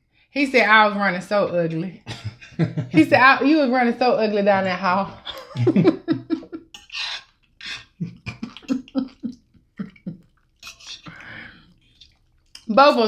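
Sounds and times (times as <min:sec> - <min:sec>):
stifled laughter: 0:02.1 - 0:03.1, 0:05.2 - 0:06.6, 0:08.0 - 0:10.2.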